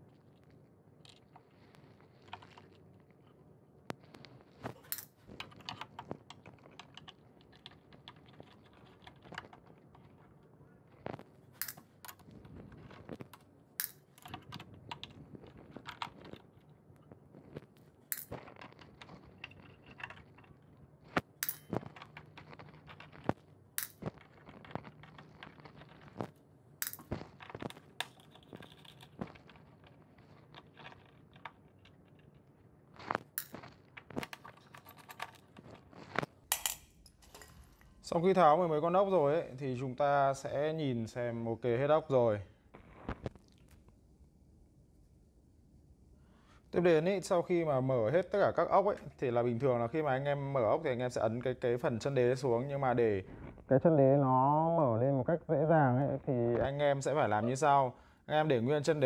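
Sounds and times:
loose screws handled: 0:33.4 - 0:35.9.

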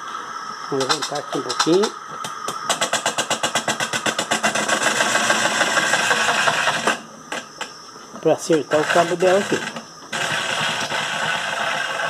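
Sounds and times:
rapid regular ticking: 0:08.6 - 0:12.0.

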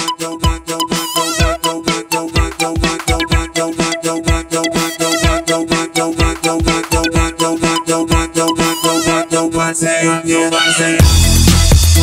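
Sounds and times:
electronic dance music: 0:00.0 - 0:12.0
heavy bass line: 0:11.0 - 0:12.0.

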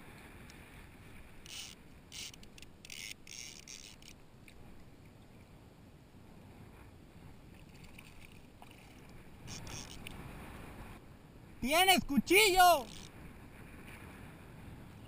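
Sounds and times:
water and wind hiss: 0:00.0 - 0:15.0
fishing reel drag buzzing: 0:01.4 - 0:04.2, 0:09.4 - 0:10.2, 0:12.6 - 0:13.1.

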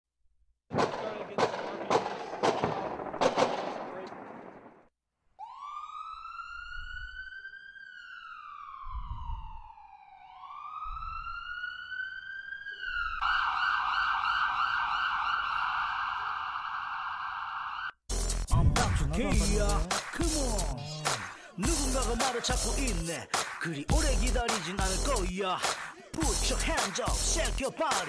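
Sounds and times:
police siren: 0:05.4 - 0:18.0.

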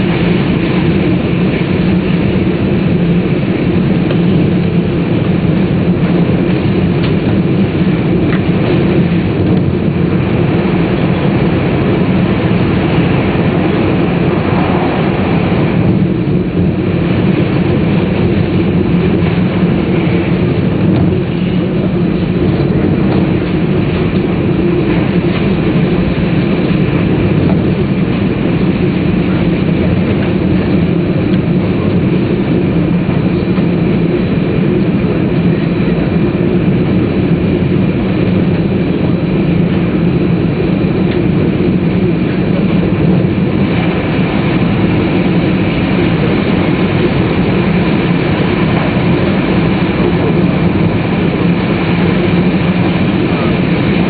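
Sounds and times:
faint steady whine: 0:00.0 - 0:54.0
train rolling rumble: 0:00.0 - 0:54.0.

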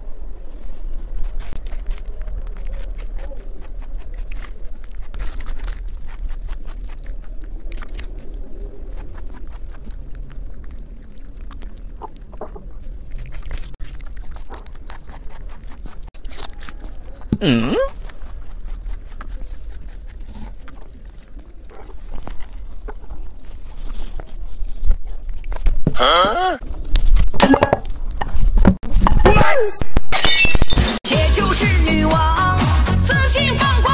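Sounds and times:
rabbit chewing wet crunches: 0:00.5 - 0:25.9.

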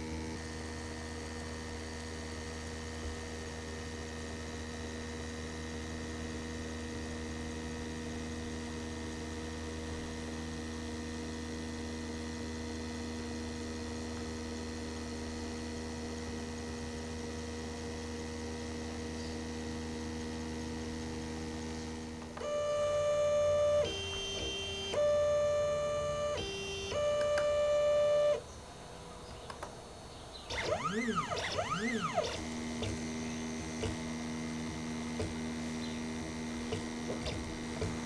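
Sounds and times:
laser engraver humming: 0:22.4 - 0:28.4, 0:30.4 - 0:38.0
laser head whine: 0:22.4 - 0:28.4, 0:30.4 - 0:38.0.

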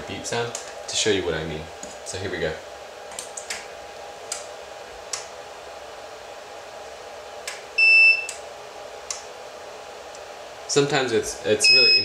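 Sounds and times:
electrical hum: 0:00.0 - 0:12.0
high electronic beep: 0:11.6 - 0:12.0.

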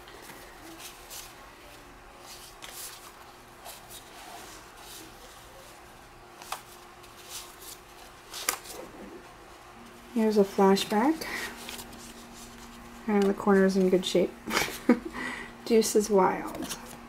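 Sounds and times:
cards sliding and rustling: 0:00.1 - 0:05.7, 0:06.4 - 0:08.9, 0:11.5 - 0:13.9.

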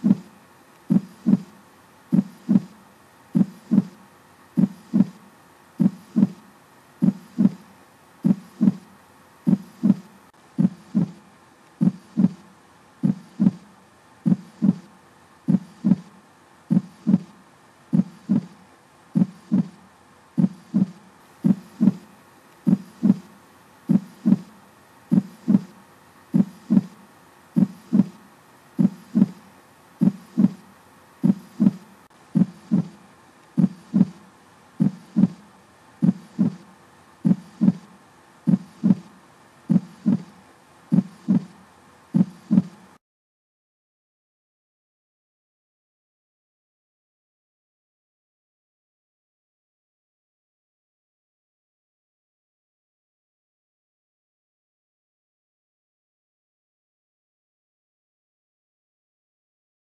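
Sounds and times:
heartbeat thumping: 0:00.0 - 0:00.3, 0:00.9 - 0:01.5, 0:02.1 - 0:02.8, 0:03.4 - 0:04.0, 0:04.6 - 0:05.2, 0:05.8 - 0:06.4, 0:07.0 - 0:07.6, 0:08.2 - 0:08.8, 0:09.5 - 0:11.2, 0:11.8 - 0:12.4, 0:13.0 - 0:13.6, 0:14.2 - 0:14.9, 0:15.5 - 0:16.1, 0:16.7 - 0:17.3, 0:17.9 - 0:18.6, 0:19.2 - 0:19.8, 0:20.4 - 0:22.1, 0:22.7 - 0:23.3, 0:23.9 - 0:24.5, 0:25.1 - 0:25.8, 0:26.4 - 0:27.0, 0:27.6 - 0:28.2, 0:28.8 - 0:29.4, 0:30.0 - 0:30.6, 0:31.2 - 0:33.0, 0:33.6 - 0:34.2, 0:34.8 - 0:35.4, 0:36.0 - 0:36.6, 0:37.2 - 0:37.9, 0:38.5 - 0:39.1, 0:39.7 - 0:40.3, 0:40.9 - 0:41.6, 0:42.2 - 0:42.8.

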